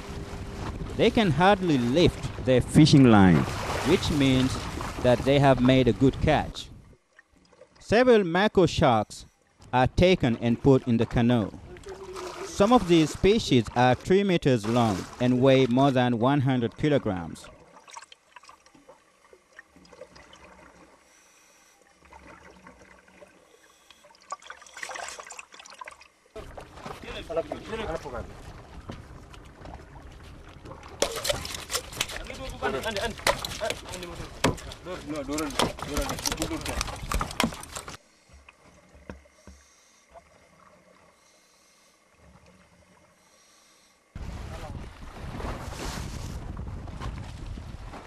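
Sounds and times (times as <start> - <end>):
wash of water: 0.0 - 6.0, 10.3 - 16.1
water sloshing and splashing: 0.0 - 7.9, 9.2 - 41.4, 42.0 - 43.3, 44.2 - 48.0
faint knocks and low thumps: 33.2 - 39.7.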